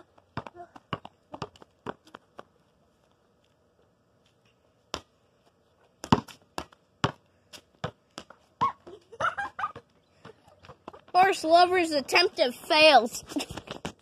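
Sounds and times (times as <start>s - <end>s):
ball bouncing on concrete: 0.0s - 2.5s, 5.9s - 8.9s, 9.7s - 11.3s, 13.5s - 14.0s.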